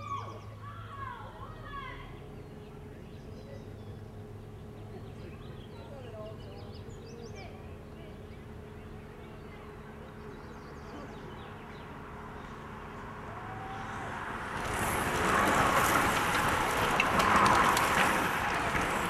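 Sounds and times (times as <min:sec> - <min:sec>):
rush of bike tyres and wind: 0:12.6 - 0:19.0
fine ticks from bikes: 0:14.6 - 0:19.0.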